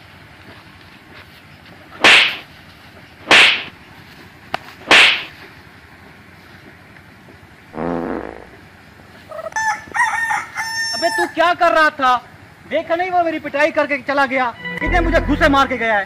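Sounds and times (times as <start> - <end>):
kicks smacking a body: 2.0 - 2.5, 3.3 - 3.7, 4.8 - 5.3
rooster crowing: 9.5 - 11.4.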